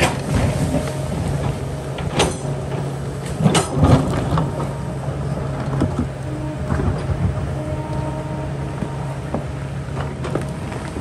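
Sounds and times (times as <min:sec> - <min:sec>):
excavator diesel engine running: 0:00.0 - 0:11.0.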